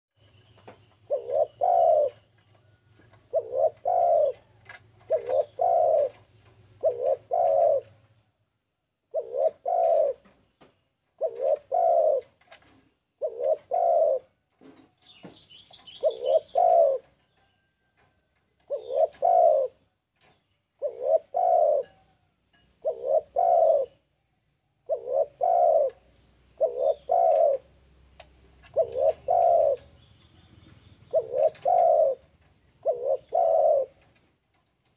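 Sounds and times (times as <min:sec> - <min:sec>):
dove cooing: 0:01.0 - 0:08.0, 0:09.1 - 0:10.4, 0:11.2 - 0:14.9, 0:15.5 - 0:17.3, 0:18.6 - 0:19.9, 0:20.7 - 0:22.2, 0:22.8 - 0:24.1, 0:24.8 - 0:27.8, 0:28.5 - 0:34.3.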